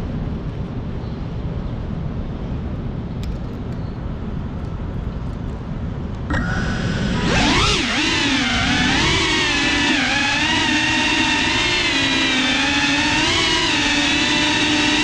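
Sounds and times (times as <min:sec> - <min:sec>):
wind: 0:00.0 - 0:15.0
drone motors whining: 0:06.3 - 0:15.0.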